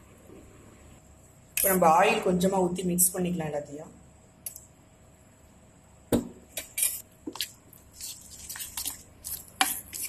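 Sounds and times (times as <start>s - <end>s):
spoon stirring and scraping in bowl: 6.6s - 10.0s.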